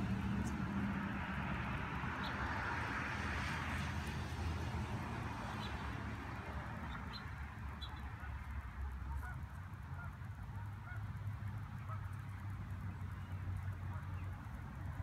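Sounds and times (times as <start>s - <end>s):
waterfowl calling: 9.0s - 11.1s.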